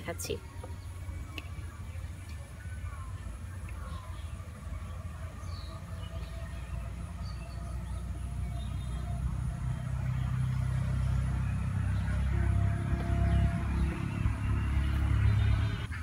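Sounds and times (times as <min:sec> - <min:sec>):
low rumble: 0:00.0 - 0:15.9.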